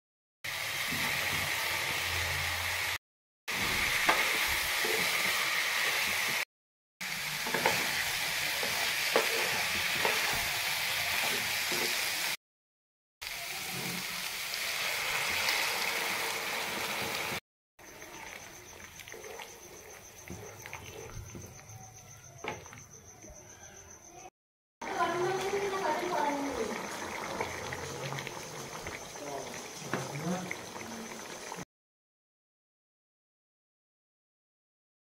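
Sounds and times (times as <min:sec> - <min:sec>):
vegetables sizzling in hot oil: 0:00.5 - 0:06.4, 0:07.0 - 0:12.4, 0:13.2 - 0:20.4, 0:24.8 - 0:31.6
spatula scraping a pan: 0:03.6 - 0:06.4, 0:07.4 - 0:12.3
curry simmering: 0:13.3 - 0:21.6, 0:24.8 - 0:31.6.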